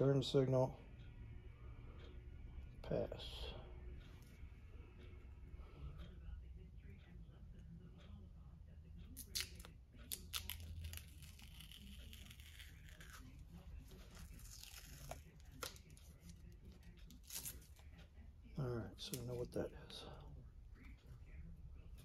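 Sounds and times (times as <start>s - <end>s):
tape ripping: 9.2s - 13.4s, 14.2s - 16.0s
tape peeling: 9.2s - 18.0s.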